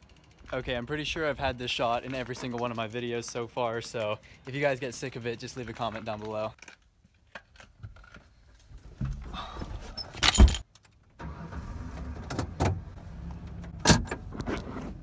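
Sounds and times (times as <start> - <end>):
car door shutting: 11.2 - 15.0
car engine starting and idling: 11.2 - 15.0.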